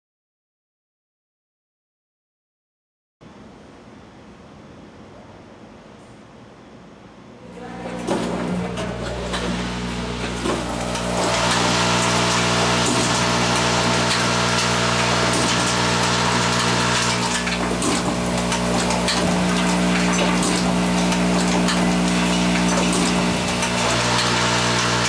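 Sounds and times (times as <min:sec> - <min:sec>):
machine humming with hiss: 0:07.5 - 0:25.0.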